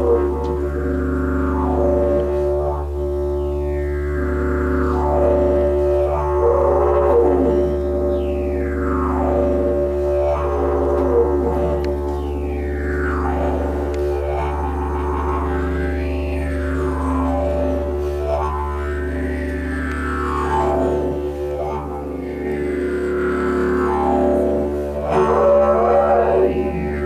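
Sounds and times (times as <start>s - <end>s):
didgeridoo drone: 0.0s - 27.0s.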